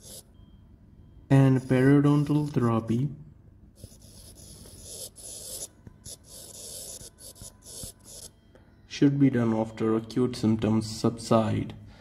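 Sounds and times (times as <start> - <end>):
stylus scratching on touchscreen: 0.0 - 0.3, 1.5 - 2.7, 3.8 - 8.4.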